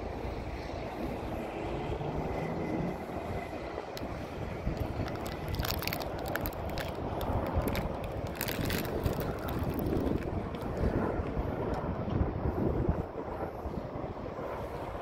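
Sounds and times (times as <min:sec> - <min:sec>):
distant go-kart engines: 0:00.0 - 0:07.0
wind on microphone: 0:00.0 - 0:15.0.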